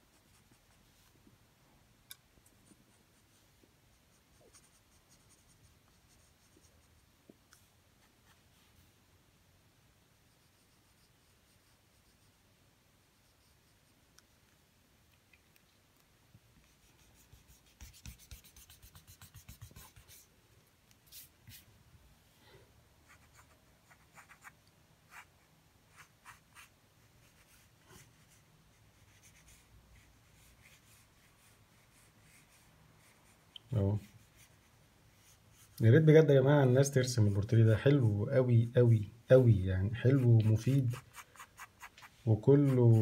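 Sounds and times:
pencil scratching on paper: 0:03.9 - 0:07.0, 0:10.3 - 0:12.4, 0:13.1 - 0:14.0, 0:16.6 - 0:20.3, 0:23.0 - 0:33.4, 0:34.0 - 0:35.8, 0:40.0 - 0:43.0.

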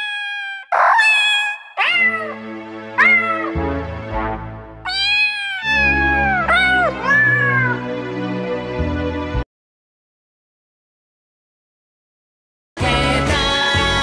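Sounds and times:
cat meows set to music: 0:00.0 - 0:03.8, 0:04.8 - 0:08.0
held low backing notes: 0:02.4 - 0:04.8.

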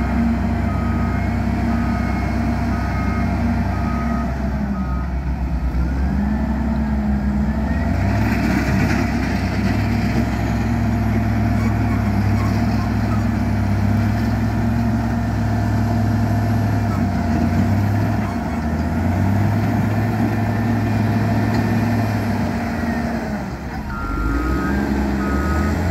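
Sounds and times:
diesel engine running under load: 0:00.0 - 0:25.9
reversing alarm beeping: 0:23.8 - 0:25.9.

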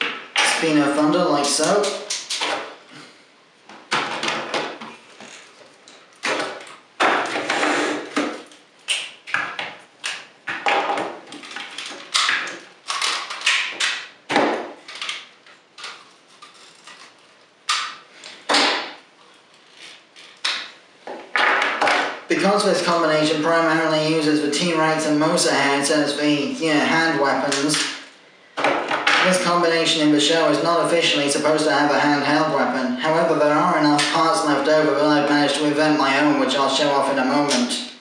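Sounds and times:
plastic toy parts clicking apart: 0:11.4 - 0:14.0.

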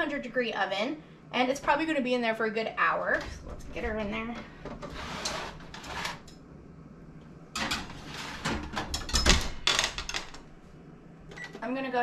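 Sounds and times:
baking dish clattering and scraping: 0:07.6 - 0:09.3.

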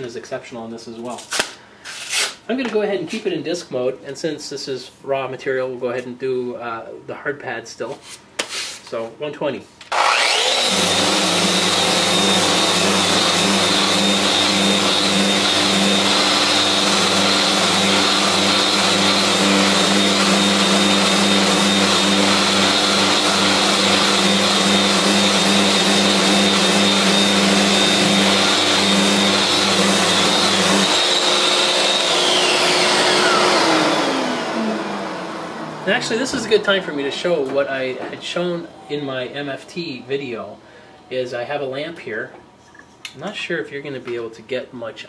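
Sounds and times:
sander whining: 0:09.9 - 0:40.2.

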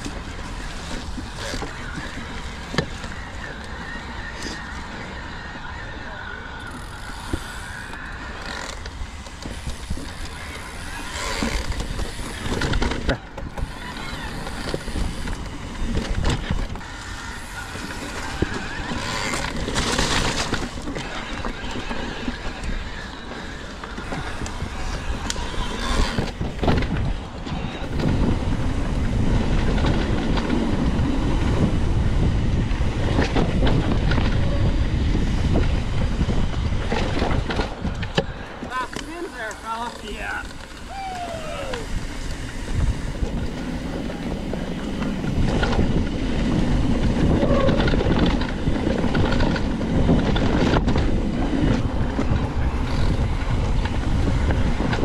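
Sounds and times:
bike rattling over bumps: 0:00.0 - 0:55.0
bike tyres on dirt: 0:00.0 - 0:55.0
wind rumble on microphone: 0:00.0 - 0:55.0.

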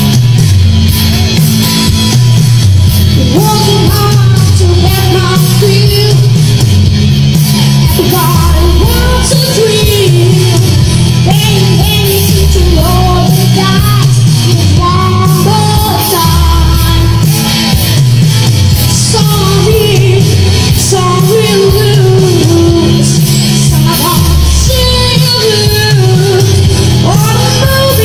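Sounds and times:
rock backing track: 0:00.0 - 0:28.0
boy singing into a microphone: 0:03.2 - 0:06.6, 0:07.8 - 0:17.5, 0:18.8 - 0:28.0.

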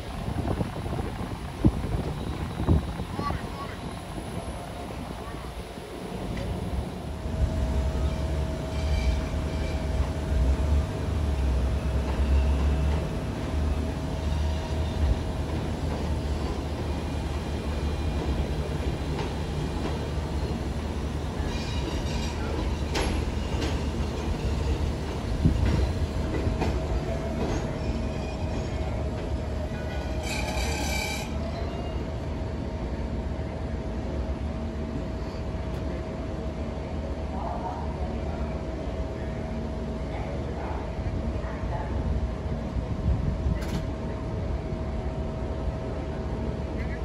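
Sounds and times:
subway train rumbling on track: 0:00.0 - 0:47.0
train wheels clicking: 0:21.9 - 0:27.8.

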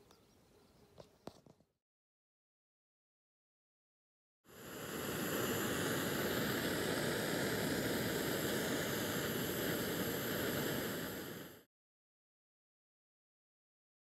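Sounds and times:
stove burner hissing: 0:04.5 - 0:11.7.

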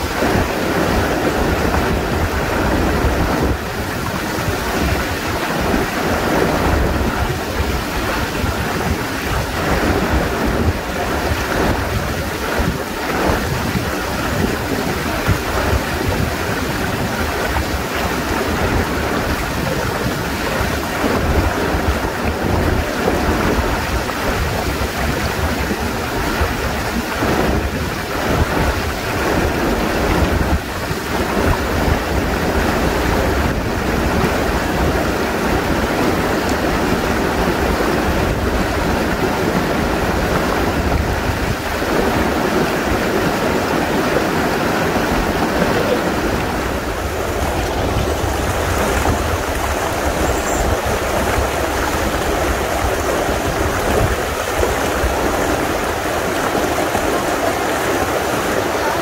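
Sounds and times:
river water rushing over rocks: 0:00.0 - 0:59.0.

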